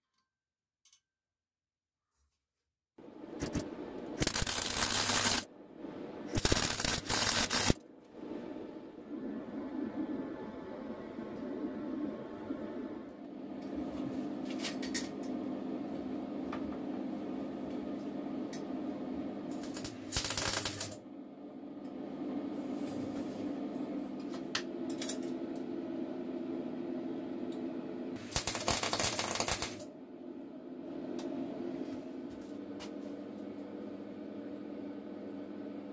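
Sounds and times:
steady low hum: 3.0s - 35.9s
loud hissing bursts: 4.2s - 5.4s, 6.4s - 7.8s.

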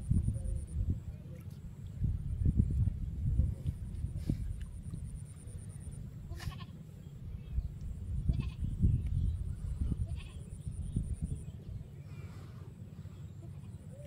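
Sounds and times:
wind rumble on microphone: 0.0s - 6.6s, 7.2s - 12.1s
farm animal calling: 6.3s - 6.8s.

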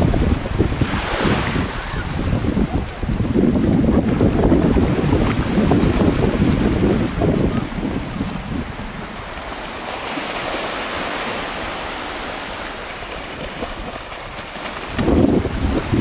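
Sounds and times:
wind buffeting microphone: 0.0s - 9.9s, 13.2s - 16.0s
sea surf washing in: 0.0s - 16.0s.

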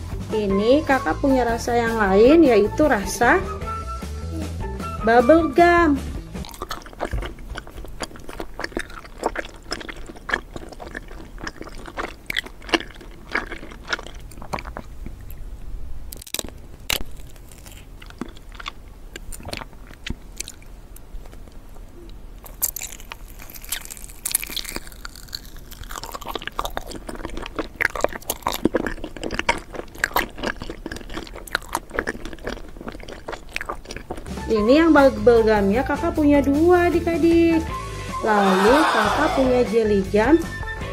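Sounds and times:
chewing gummy candy: 6.4s - 34.6s.

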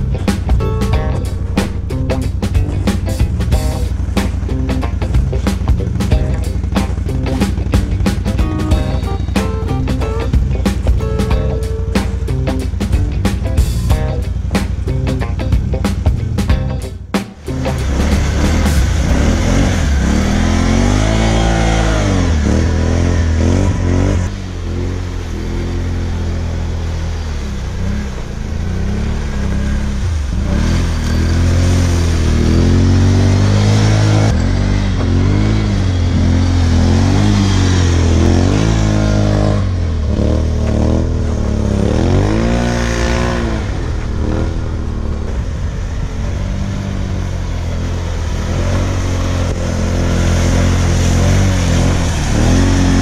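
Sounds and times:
atv engine revving: 0.0s - 53.0s.

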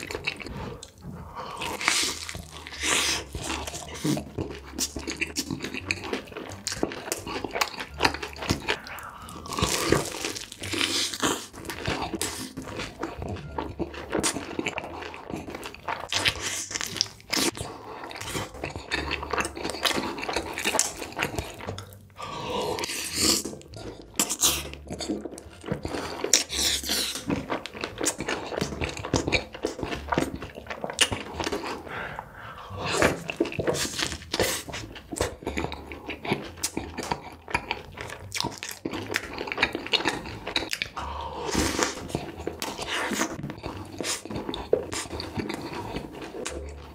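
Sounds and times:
wet chewing: 0.0s - 46.9s
crisp crunching bites: 1.6s - 22.0s.

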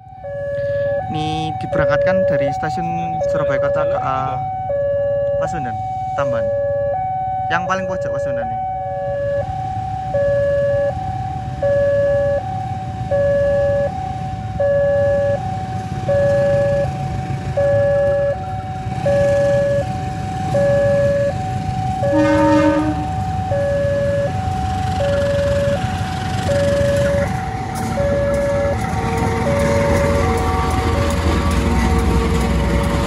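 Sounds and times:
level crossing alarm ringing: 0.0s - 33.0s
train horn blast: 22.0s - 23.2s.

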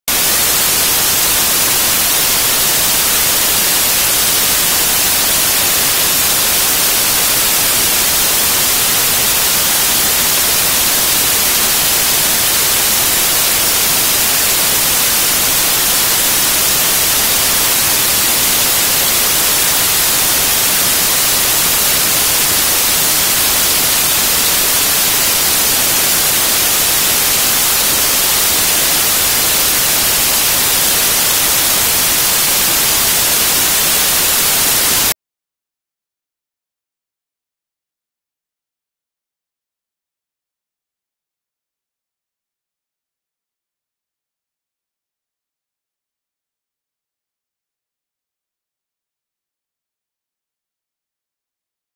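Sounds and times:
television static hiss: 0.1s - 35.1s.

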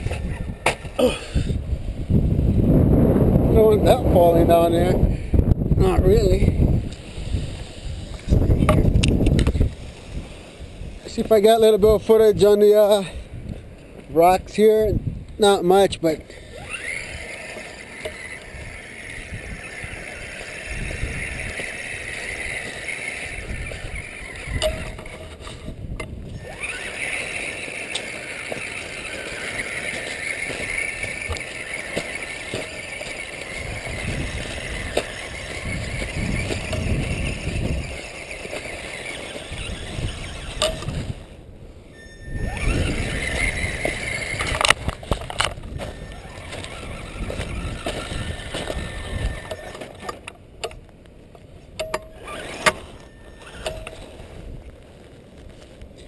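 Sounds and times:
rc car electric motor whining: 15.6s - 50.3s, 51.8s - 54.4s.

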